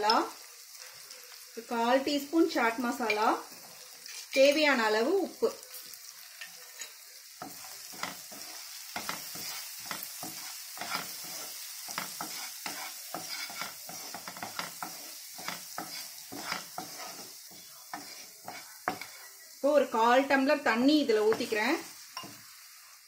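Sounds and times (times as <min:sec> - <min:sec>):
vegetables sizzling in oil: 0:00.0 - 0:23.0
spatula scraping a frying pan: 0:03.0 - 0:04.6, 0:05.6 - 0:19.5.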